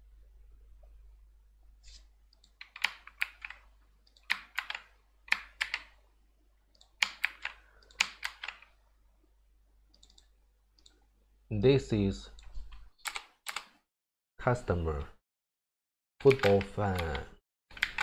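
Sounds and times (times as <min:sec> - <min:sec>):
computer keyboard keys clicking: 0:02.3 - 0:05.9, 0:06.7 - 0:08.7, 0:09.9 - 0:11.0, 0:12.4 - 0:13.7, 0:16.2 - 0:18.0.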